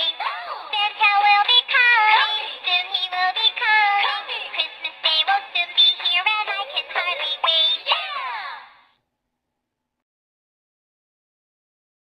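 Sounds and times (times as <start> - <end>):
cartoon voice singing over music: 0.0 - 8.8.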